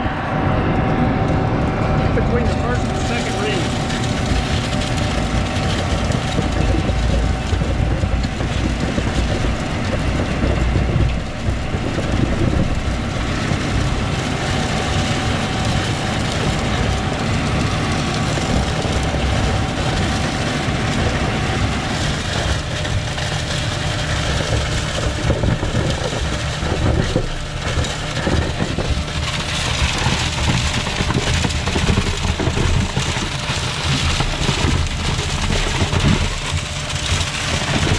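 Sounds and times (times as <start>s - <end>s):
truck engine low rumble: 0.0s - 37.9s
concrete pump knocks: 2.3s - 13.7s.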